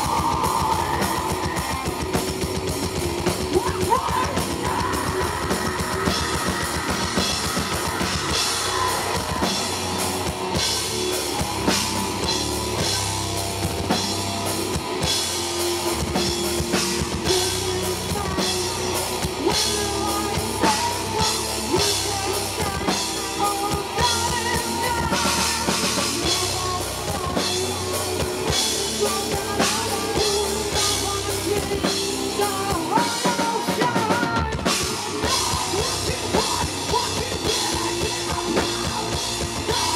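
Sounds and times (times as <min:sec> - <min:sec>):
woman singing: 0:00.0 - 0:02.0, 0:03.2 - 0:09.8, 0:16.8 - 0:39.9
distorted electric guitars and bass: 0:00.0 - 0:39.9
drum kit pounding: 0:00.0 - 0:39.9.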